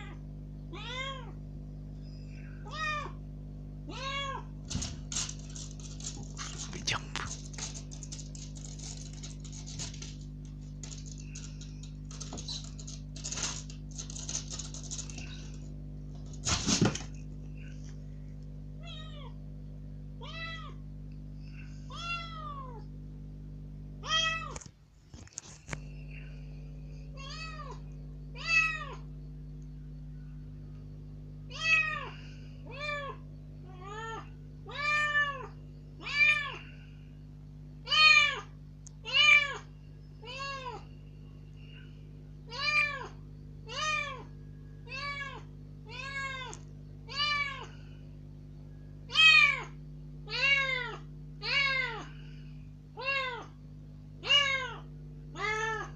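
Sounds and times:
kitten meowing loudly: 0:00.0 - 0:01.4, 0:02.6 - 0:03.2, 0:03.9 - 0:04.5, 0:37.9 - 0:40.8, 0:54.2 - 0:54.8
kitten claws scratching curtain: 0:04.6 - 0:17.2.

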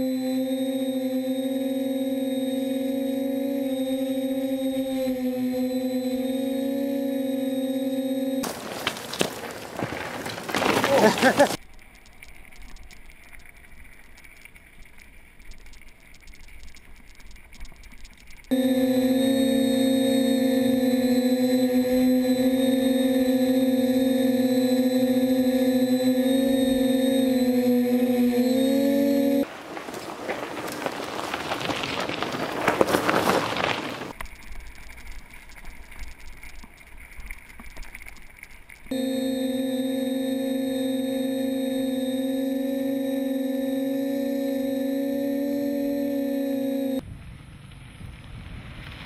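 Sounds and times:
bike tyres crunching on gravel: 0:08.4 - 0:11.6, 0:29.5 - 0:34.2
low rumble: 0:18.5 - 0:29.5.

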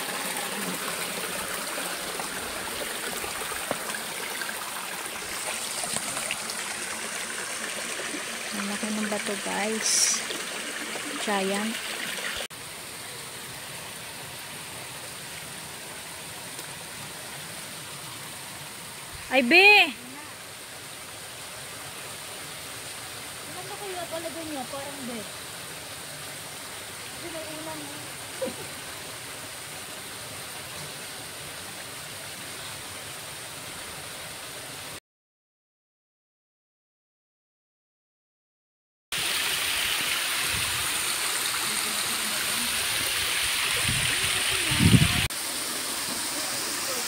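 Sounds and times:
water rushing over rocks: 0:00.0 - 0:32.2, 0:39.2 - 0:47.0
outdoor ambience hiss: 0:00.9 - 0:35.0.

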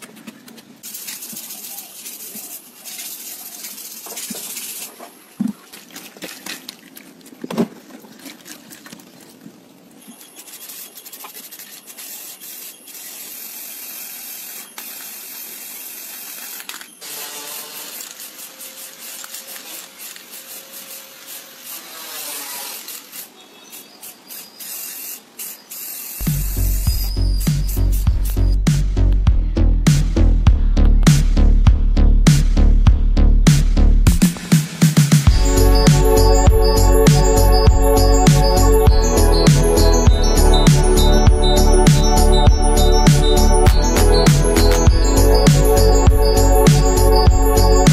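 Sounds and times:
spray can hissing: 0:00.8 - 0:05.0, 0:10.4 - 0:28.4, 0:34.4 - 0:47.9.

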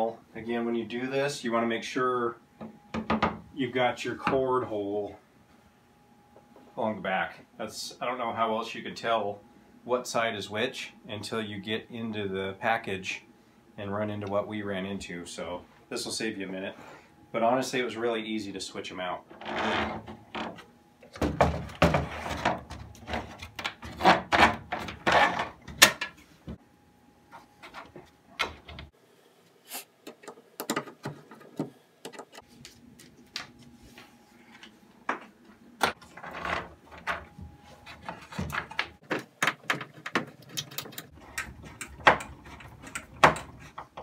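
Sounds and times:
wood knocking and scraping on wood: 0:34.5 - 0:44.0.

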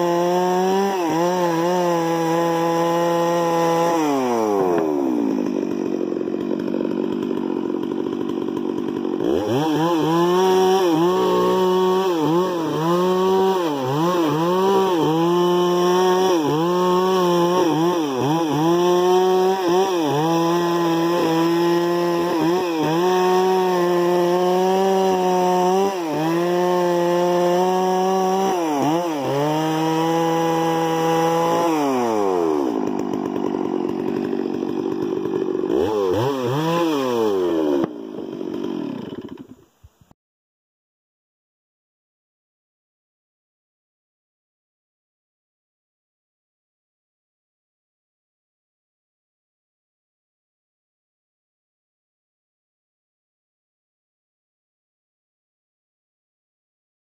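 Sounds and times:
chainsaw revving: 0:00.0 - 0:39.6.

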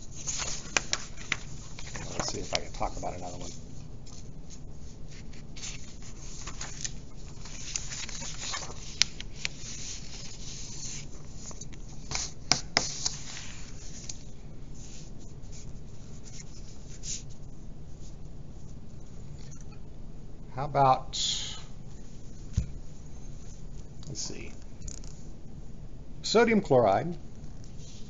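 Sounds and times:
paper rustling and sliding: 0:00.0 - 0:18.2.

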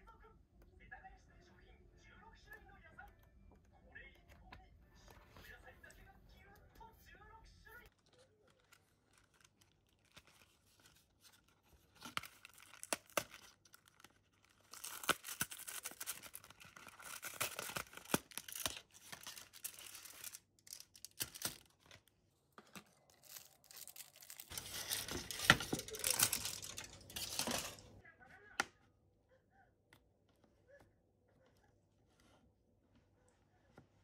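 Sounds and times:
cardboard and foil tearing and crinkling: 0:08.0 - 0:28.0.

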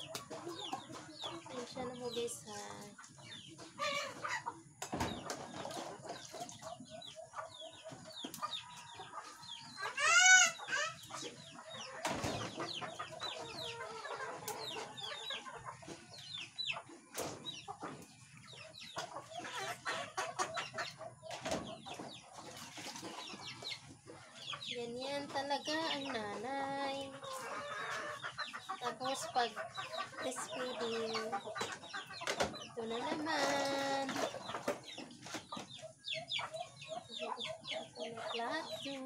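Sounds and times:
chickens clucking: 0:00.0 - 0:39.0.

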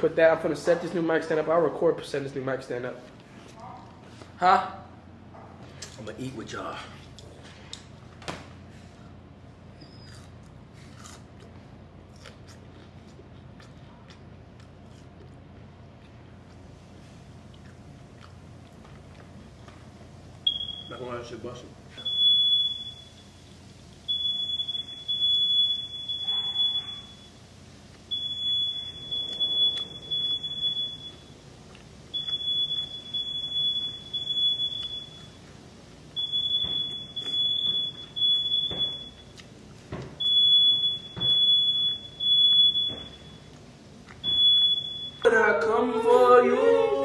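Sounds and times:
smoke alarm beeping: 0:20.4 - 0:45.4.

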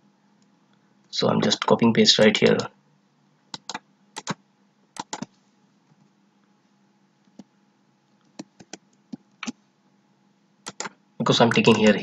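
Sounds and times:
keyboard keystrokes: 0:03.6 - 0:04.4, 0:05.0 - 0:05.3, 0:08.3 - 0:09.6, 0:10.7 - 0:12.0.

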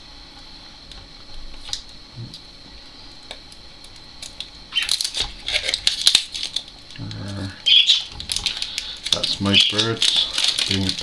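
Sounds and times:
pet birds chattering: 0:04.7 - 0:05.0, 0:07.6 - 0:08.2, 0:09.3 - 0:10.8.

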